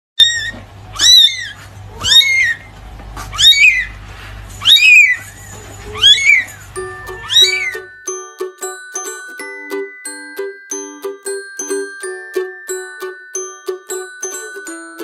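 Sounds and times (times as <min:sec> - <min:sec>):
kitten meowing: 0:00.2 - 0:02.7, 0:03.3 - 0:03.9, 0:04.6 - 0:05.2, 0:05.9 - 0:07.9.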